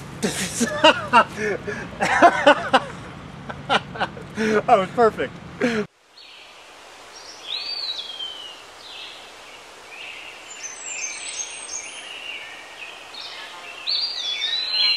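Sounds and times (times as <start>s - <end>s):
steady outdoor hiss: 0.0s - 14.9s
birds chirping and whistling: 7.2s - 9.2s, 10.0s - 14.9s.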